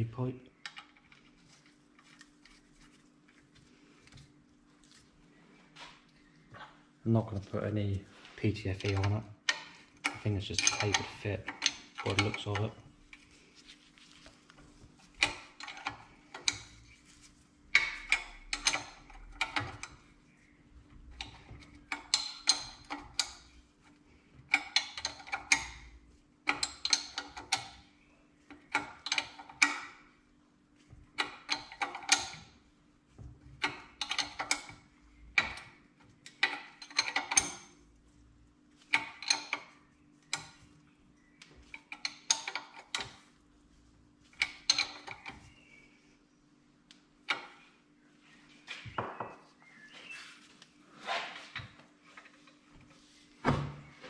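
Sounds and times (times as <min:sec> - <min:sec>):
spanner clinking on metal nut: 0:08.8 - 0:12.6.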